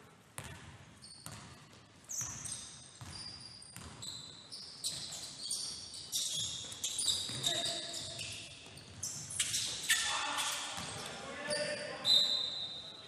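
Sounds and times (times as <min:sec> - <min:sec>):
basketball bouncing on hardwood floor: 0:00.4 - 0:01.6, 0:03.0 - 0:03.2, 0:03.8 - 0:04.0, 0:07.2 - 0:07.7
sneakers squeaking: 0:00.4 - 0:13.0.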